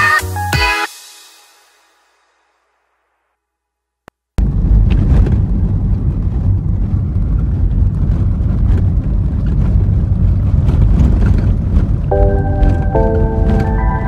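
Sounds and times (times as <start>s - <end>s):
car engine and tyres rumbling: 4.4s - 14.0s.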